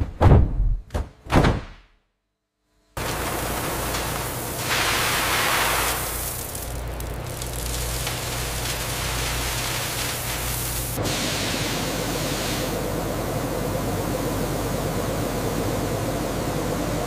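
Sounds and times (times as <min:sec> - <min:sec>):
rubber granules pouring into silo: 0:03.0 - 0:12.8.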